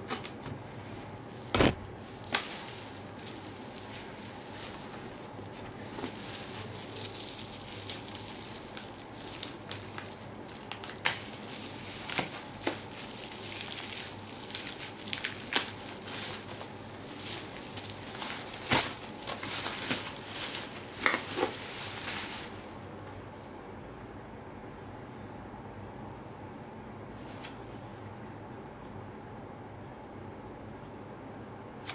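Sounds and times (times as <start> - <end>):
bubble wrap crinkling: 0.1 - 22.8.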